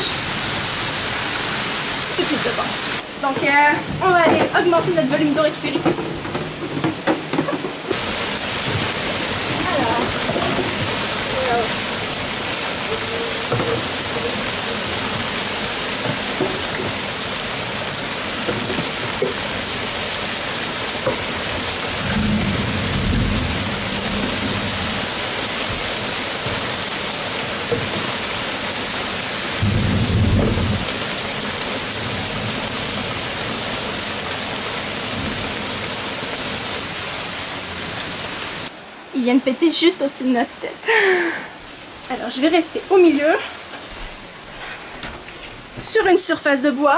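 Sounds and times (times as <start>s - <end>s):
heavy rain pouring: 0.0s - 46.9s
low rolls of thunder: 21.8s - 25.9s, 29.6s - 31.0s.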